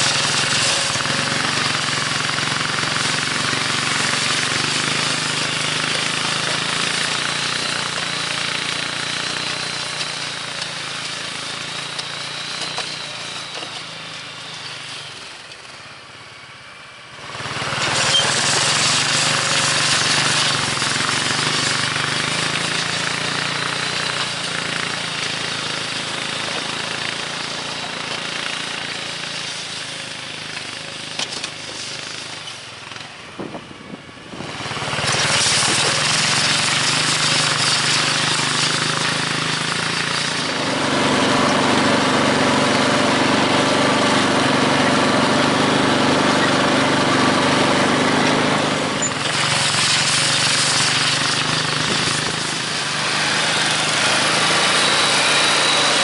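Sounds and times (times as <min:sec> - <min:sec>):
tractor engine rattling drone: 0:00.0 - 0:56.0.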